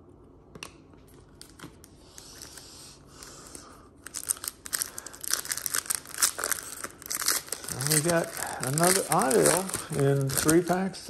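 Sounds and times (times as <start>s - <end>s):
plastic wrapper crinkling: 3.5s - 11.0s.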